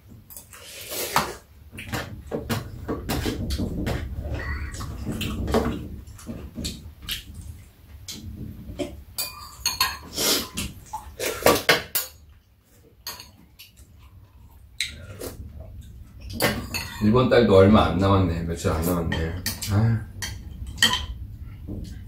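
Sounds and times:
cutlery clinking against bowls: 8.8 - 12.3, 13.0 - 14.0, 16.3 - 17.1, 18.8 - 21.2.

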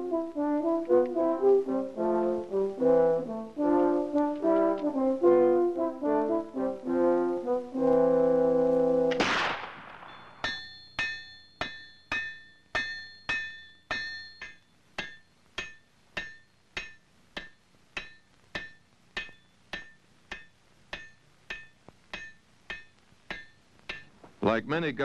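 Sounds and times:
hammer striking anvil: 10.1 - 24.1.

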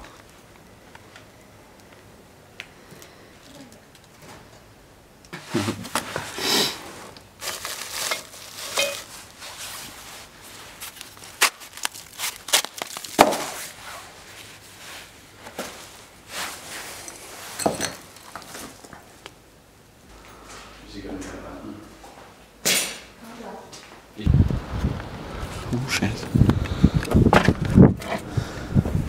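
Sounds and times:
rubble crunching and rustling: 7.1 - 19.4.

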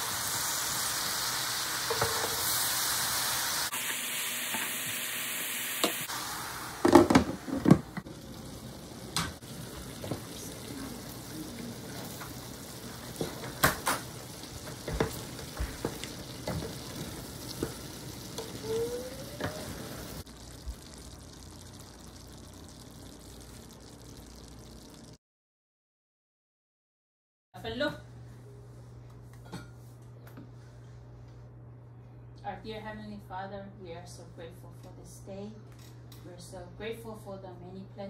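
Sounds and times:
food sizzling: 0.0 - 25.2
wooden spoon knocking and scraping pan: 13.2 - 18.6.

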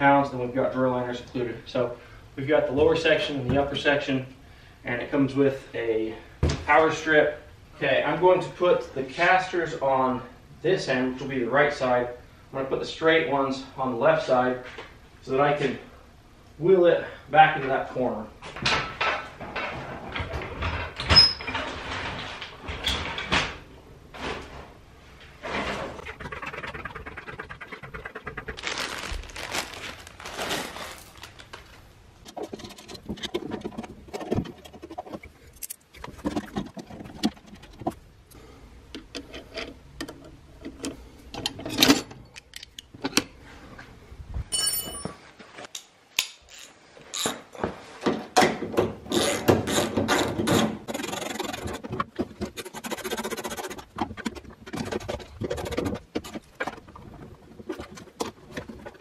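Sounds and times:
tools clattering and scraping: 18.4 - 23.4, 39.0 - 43.4, 44.5 - 59.0
rapid clicks and rattles: 25.5 - 29.0, 32.2 - 38.0, 49.2 - 59.0
bolts and washers clinking: 39.0 - 43.3, 44.5 - 47.5.

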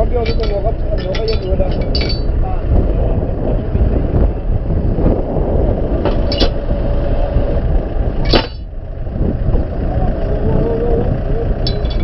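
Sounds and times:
sharp metallic clanks: 0.0 - 2.4, 6.0 - 6.7, 8.2 - 8.7, 11.6 - 12.0
tractor engine running: 0.0 - 12.0.

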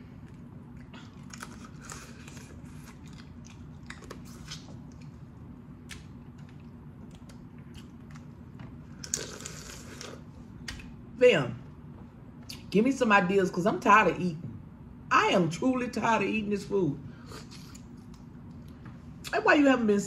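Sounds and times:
sucking and chewing: 0.0 - 10.9, 17.2 - 18.8
loud slurp: 9.1 - 10.2.

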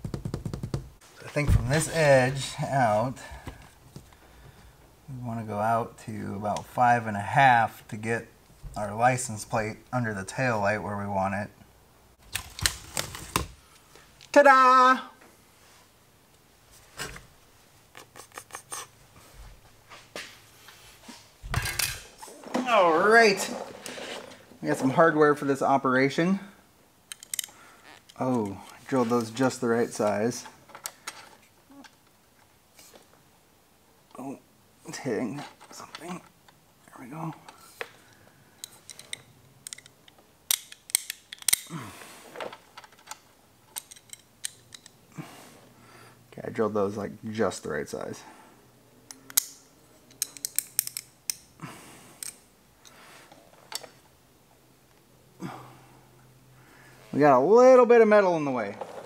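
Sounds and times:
metal bracket clicking and scraping: 21.5 - 22.4, 49.1 - 51.4.

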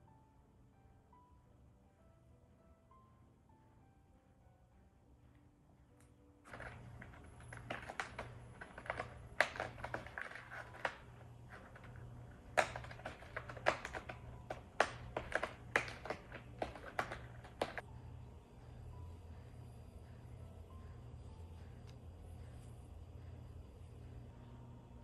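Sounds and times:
cat scratching cardboard: 6.5 - 17.8.

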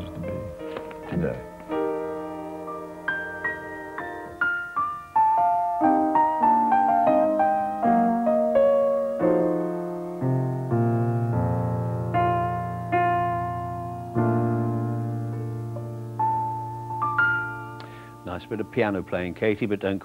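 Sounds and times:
grand piano playing: 0.0 - 20.0.

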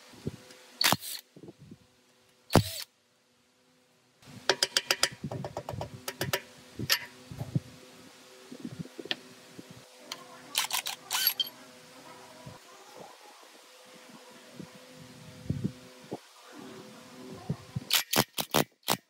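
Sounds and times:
faint steady hum: 0.0 - 17.9
clicks and knocks on metal: 4.5 - 7.1.

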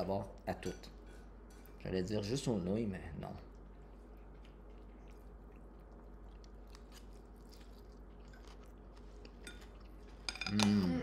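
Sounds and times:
chewing and slurping noodles: 3.4 - 10.3.

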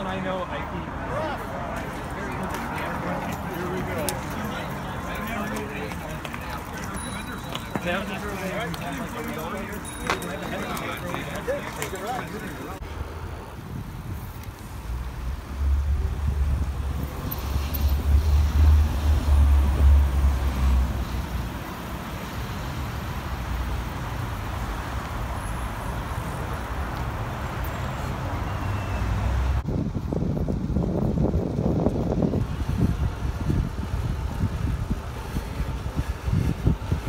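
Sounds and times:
road noise: 0.0 - 37.0
wind rushing over microphone: 12.8 - 21.6, 29.5 - 37.0.

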